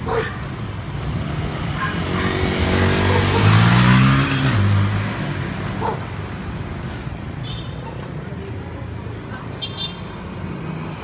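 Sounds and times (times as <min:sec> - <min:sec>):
vehicle passing by: 0:00.6 - 0:07.0.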